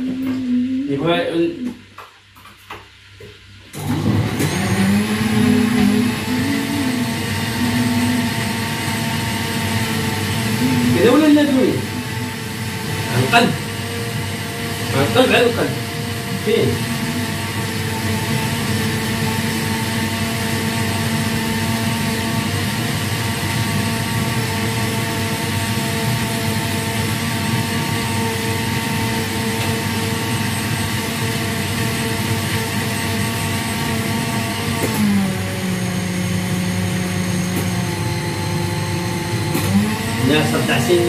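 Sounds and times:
machine drone with steady tones: 0:05.7 - 0:09.3, 0:10.5 - 0:13.4.

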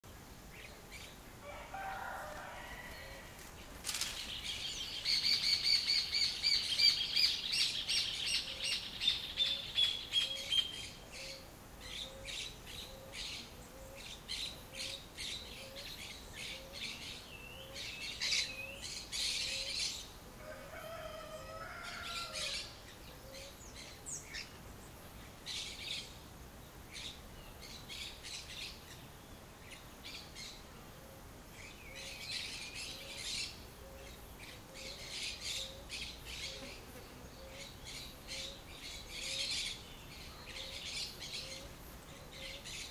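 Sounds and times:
birds chirping and calling: 0:01.8 - 0:20.2, 0:20.9 - 0:24.6, 0:26.9 - 0:42.9.

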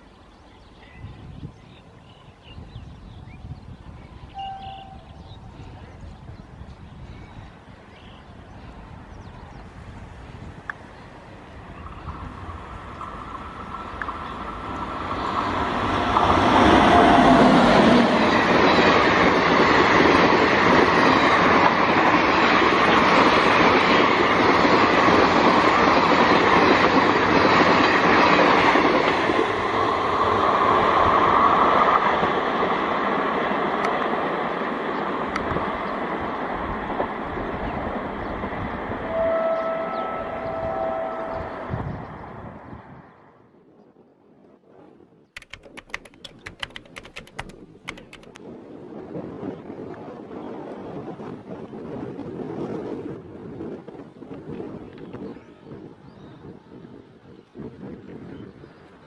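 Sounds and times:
train passing at speed: 0:07.6 - 0:43.3.

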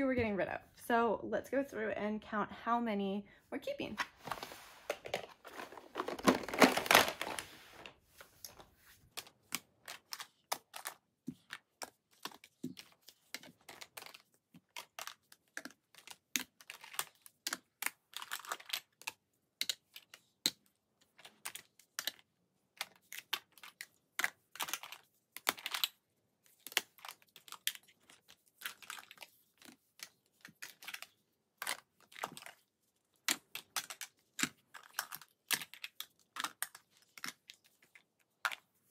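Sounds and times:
makeup compacts clicking and clattering: 0:04.9 - 0:07.4, 0:09.2 - 0:26.0, 0:28.6 - 0:32.6, 0:33.2 - 0:38.7.

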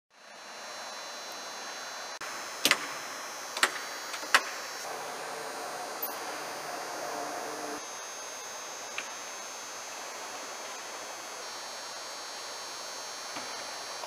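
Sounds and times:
hangar background noise: 0:04.8 - 0:07.8.

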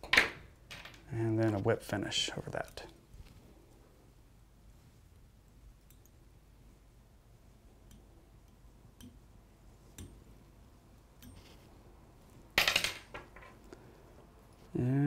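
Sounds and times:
light ticks of thread tool: 0:05.8 - 0:06.2, 0:07.7 - 0:09.3, 0:09.9 - 0:10.3, 0:11.2 - 0:11.6.

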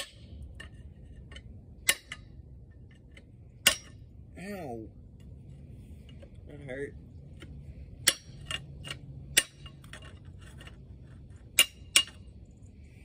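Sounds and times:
hand tool striking metal: 0:00.0 - 0:00.7, 0:01.8 - 0:02.4, 0:03.6 - 0:04.0, 0:08.0 - 0:10.7, 0:11.4 - 0:12.3.

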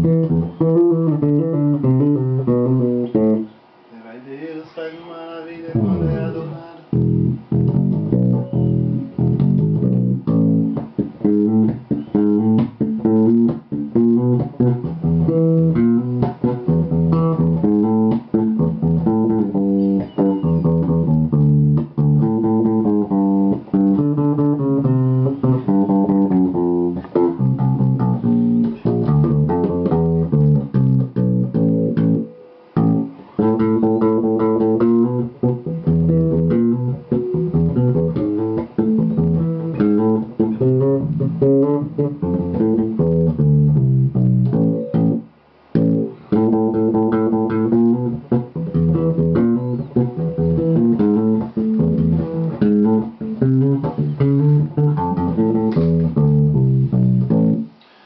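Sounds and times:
electric bass playing: 0:00.0 - 0:03.9, 0:05.7 - 0:57.8.

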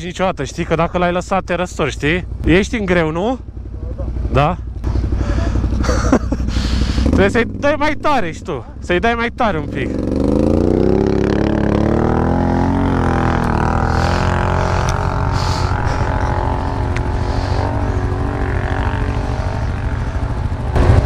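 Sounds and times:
atv engine revving hard: 0:04.8 - 0:07.6, 0:09.6 - 0:21.0.

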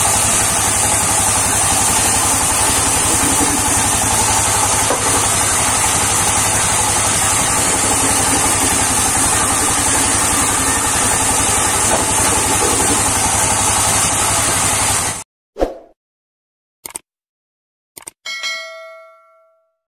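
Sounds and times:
band saw cutting log: 0:00.0 - 0:15.2.

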